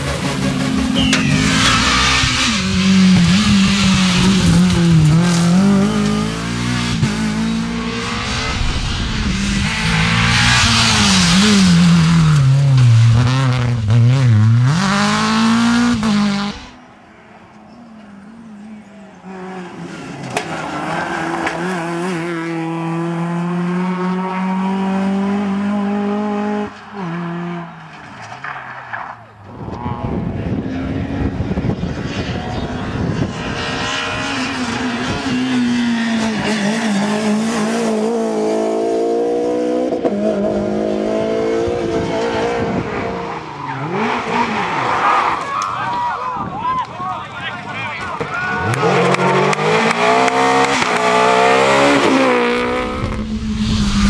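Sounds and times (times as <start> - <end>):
rally car engine revving: 0.0 - 16.8, 18.6 - 45.5, 48.1 - 54.0
distant rally car approaching: 0.0 - 54.0
tyre squeal: 0.9 - 2.8.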